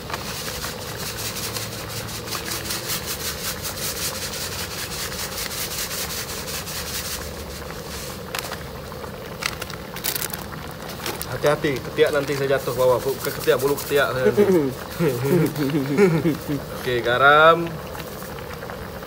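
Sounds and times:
stew simmering hiss: 0:00.0 - 0:19.0
granules shaken from packet: 0:09.3 - 0:14.1.

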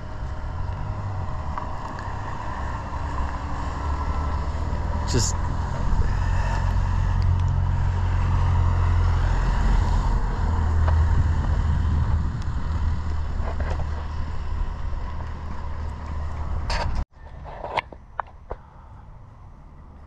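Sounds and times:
wind buffeting microphone: 0:05.6 - 0:17.0.

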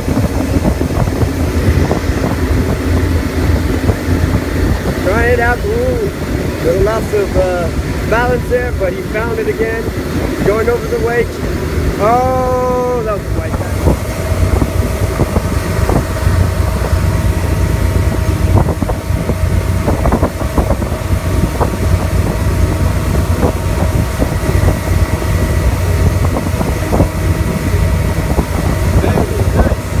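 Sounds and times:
boat engine running: 0:00.0 - 0:30.0
water rushing: 0:00.0 - 0:30.0
wind buffeting microphone: 0:00.0 - 0:30.0.

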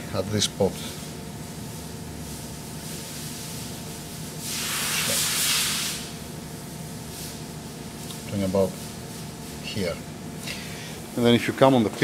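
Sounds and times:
low background hum: 0:00.0 - 0:12.0
burst of hiss: 0:04.4 - 0:06.2.

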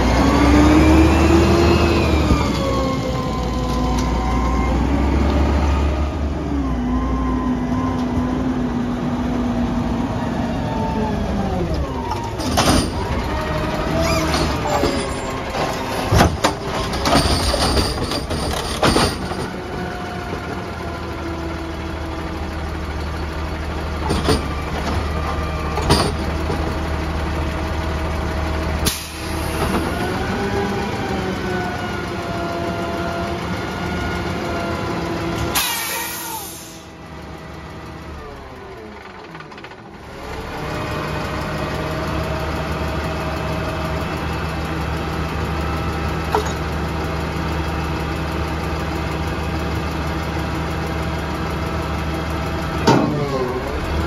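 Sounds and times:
garbage truck engine running: 0:00.0 - 0:54.0
metal arm clanking and knocking: 0:12.4 - 0:13.4, 0:14.0 - 0:20.5
air hiss: 0:35.6 - 0:36.9.

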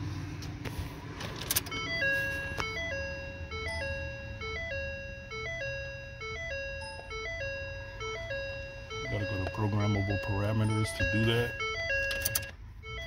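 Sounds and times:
car warning chime: 0:01.5 - 0:13.0.

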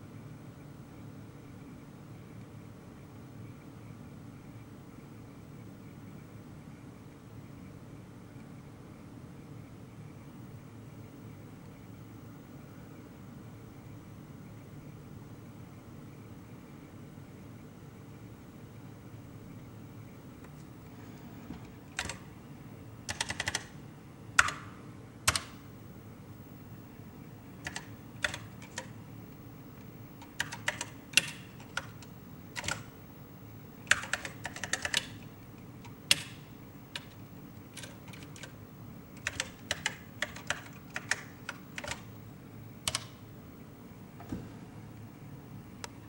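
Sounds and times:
keyboard key clicks: 0:24.4 - 0:24.7, 0:25.3 - 0:25.6, 0:30.2 - 0:32.9, 0:33.9 - 0:35.2, 0:35.9 - 0:36.4, 0:39.2 - 0:42.1, 0:42.8 - 0:43.2.

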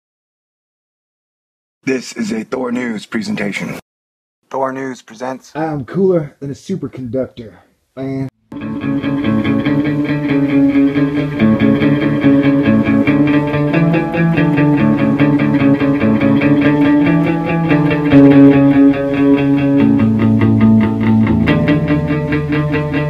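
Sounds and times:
instrumental rock music: 0:08.5 - 0:23.0.

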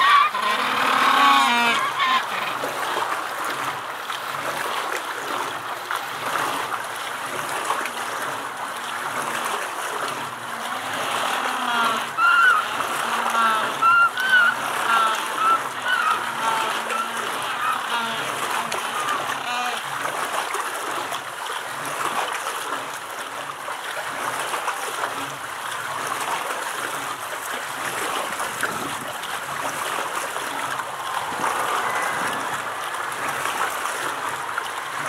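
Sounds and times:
penguins honking: 0:00.0 - 0:02.8, 0:10.5 - 0:19.8, 0:31.0 - 0:32.8
running water: 0:00.0 - 0:35.0.

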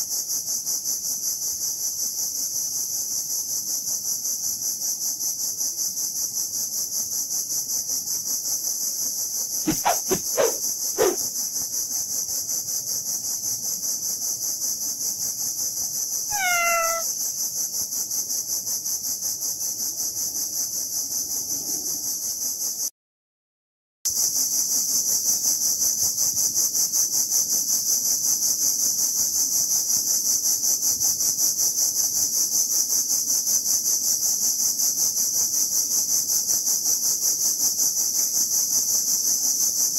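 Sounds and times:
cicadas droning: 0:00.0 - 0:22.9, 0:24.1 - 0:39.9
animal call falling in pitch: 0:16.3 - 0:17.1.

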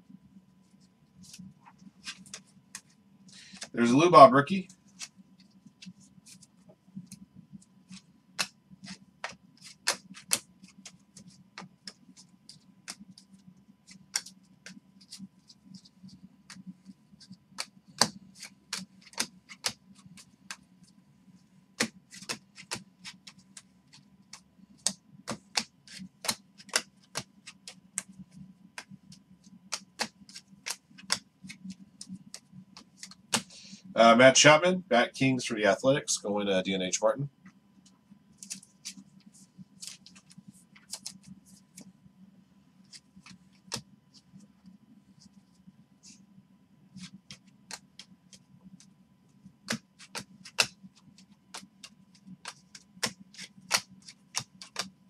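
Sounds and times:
low steady hum: 0:00.0 - 0:55.0
trading cards flicked snapping: 0:07.9 - 0:11.0, 0:13.9 - 0:14.8, 0:17.5 - 0:20.6, 0:24.3 - 0:28.2, 0:29.7 - 0:33.5, 0:49.6 - 0:50.8, 0:51.5 - 0:54.9.

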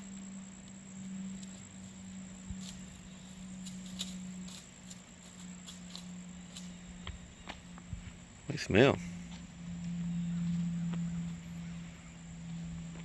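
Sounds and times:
high-pitched insect trill: 0:00.0 - 0:13.0
low steady hum: 0:00.0 - 0:13.0
faint ticks: 0:00.1 - 0:01.7.

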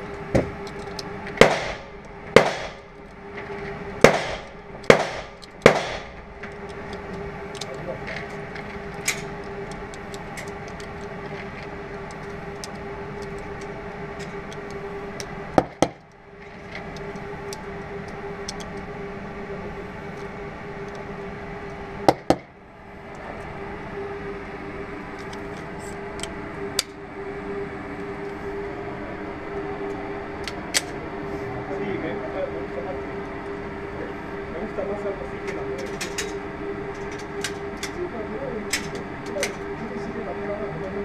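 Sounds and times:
ventilation hum: 0:00.0 - 0:41.0
loud gunshots: 0:01.4 - 0:02.9, 0:04.0 - 0:06.2.

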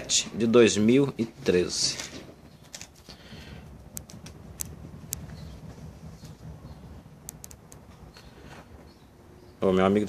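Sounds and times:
low steady rumble: 0:00.0 - 0:10.0
faint clicks: 0:03.9 - 0:05.5, 0:07.2 - 0:08.3.

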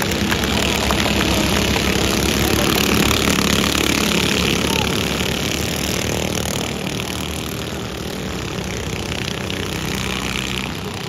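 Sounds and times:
racing car engines: 0:00.0 - 0:11.0.

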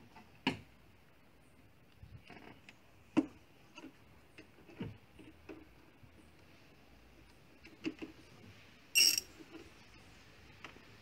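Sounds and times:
hand tools and engine parts clicking: 0:09.0 - 0:09.5.

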